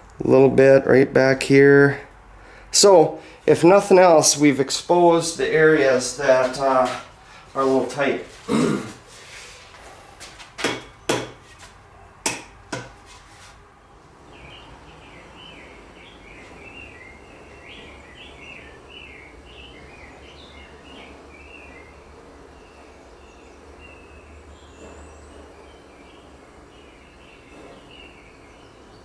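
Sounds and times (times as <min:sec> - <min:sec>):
sharp knocks on axe handle: 0:10.6 - 0:11.4, 0:12.3 - 0:13.0
bird singing chirps: 0:13.8 - 0:29.0.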